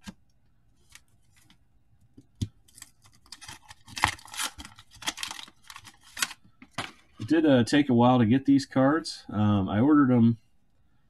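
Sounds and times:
wax paper wrapper crinkling: 2.7 - 6.9.

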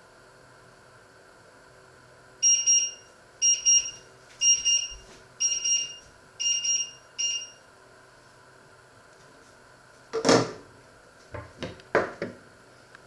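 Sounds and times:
electronic alarm beeping: 2.4 - 7.6.

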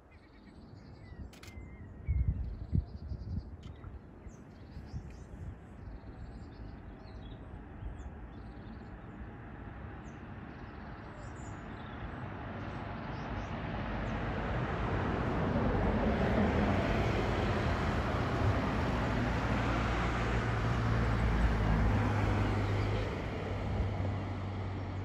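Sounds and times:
vehicle passing by: 12.2 - 25.0.

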